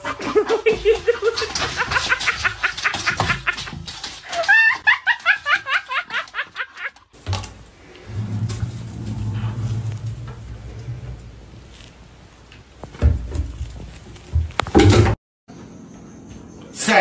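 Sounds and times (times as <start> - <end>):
person laughing hard: 0.0 - 7.0.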